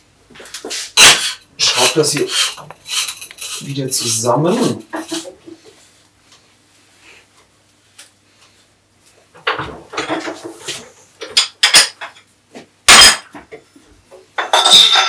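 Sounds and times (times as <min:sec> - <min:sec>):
metal parts clinking and scraping: 0:00.5 - 0:03.7, 0:14.5 - 0:15.0.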